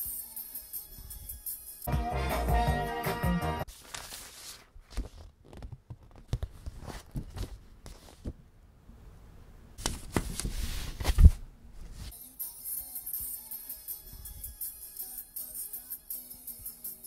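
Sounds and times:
music: 0.0s - 3.7s, 12.1s - 17.0s
paper sleeve rustling: 3.7s - 8.4s, 9.8s - 12.1s.

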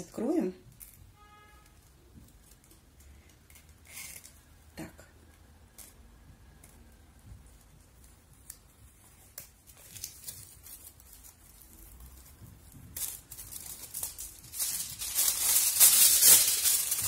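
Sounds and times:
paper strip peeling and tearing: 2.2s - 4.5s, 7.8s - 17.0s
foil crinkling: 8.0s - 17.0s.

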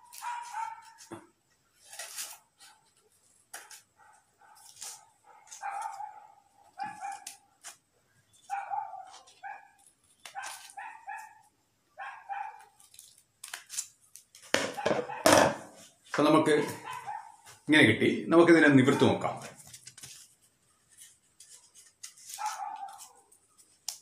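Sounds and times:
scissors snipping paper: 0.0s - 1.1s, 3.5s - 3.9s, 4.5s - 6.1s, 6.8s - 7.8s, 8.4s - 11.3s, 12.5s - 14.5s, 21.0s - 24.0s.

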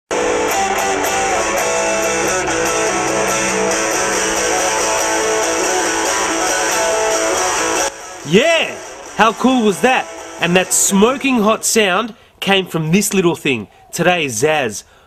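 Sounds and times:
distorted electric guitar: 0.1s - 11.9s.

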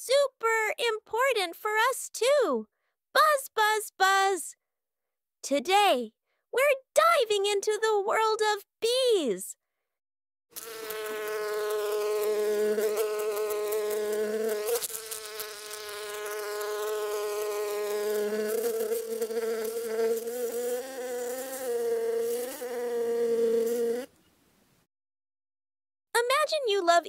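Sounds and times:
bee buzzing: 10.5s - 24.1s.

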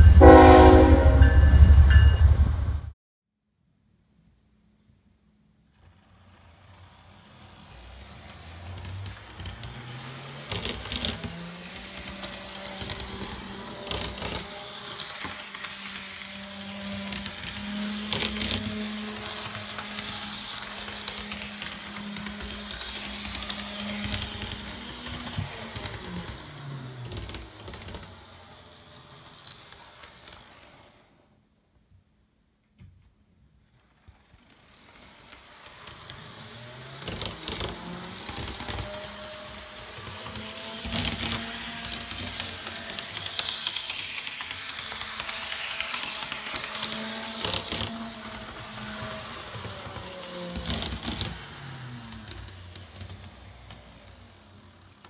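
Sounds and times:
model train motor whine: 5.7s - 31.4s, 33.6s - 55.0s
wheel clicks: 5.8s - 31.1s, 33.7s - 55.0s.

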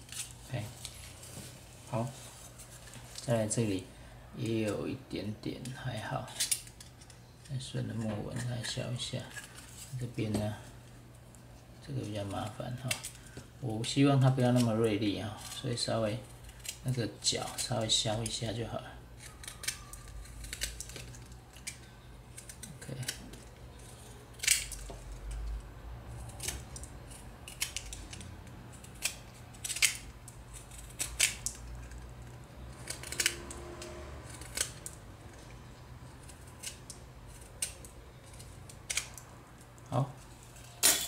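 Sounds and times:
knife shaving wood: 19.2s - 39.2s.

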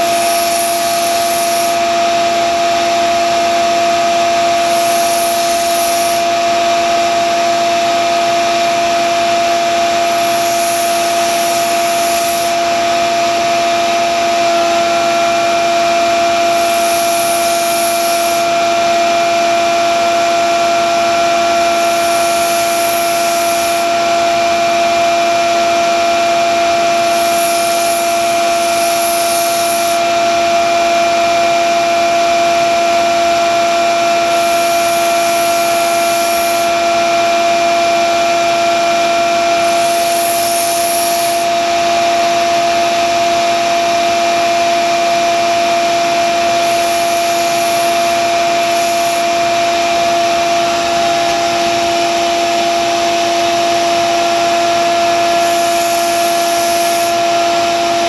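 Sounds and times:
knife blade grinding on belt: 0.0s - 1.8s, 4.6s - 6.2s, 10.0s - 12.6s
belt sander motor hum: 0.0s - 7.2s, 9.4s - 24.6s, 26.7s - 30.2s, 33.4s - 41.9s, 45.3s - 58.0s.

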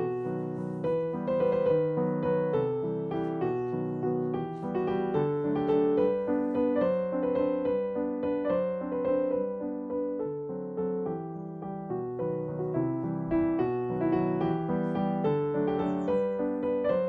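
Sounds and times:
gentle piano melody: 0.0s - 17.0s.

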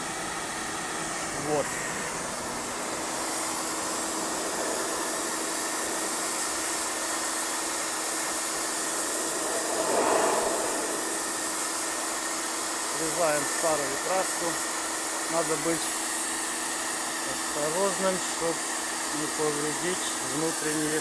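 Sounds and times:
faint steady hum: 0.0s - 15.4s
pressure washer jet hissing: 0.9s - 21.0s.

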